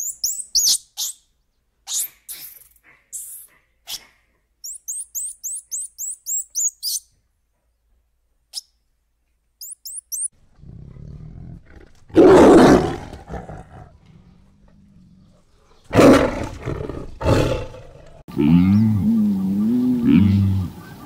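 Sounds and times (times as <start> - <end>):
small bird chirping: 0.0 - 7.2, 9.6 - 10.4
tiger growling and roaring: 10.4 - 20.8.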